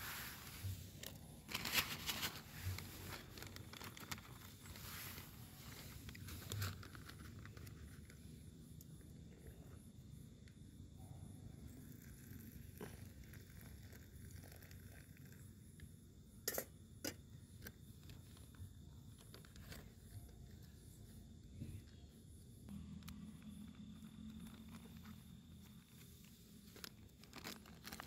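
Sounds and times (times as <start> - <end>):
plastic bag crinkling: 1.0 - 8.2, 26.6 - 28.0.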